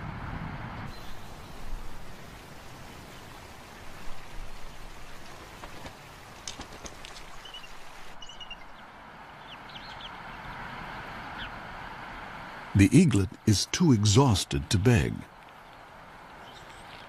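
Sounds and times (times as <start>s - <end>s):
steady outdoor hiss: 0.0s - 17.0s
faint high bird peeps: 7.4s - 8.8s.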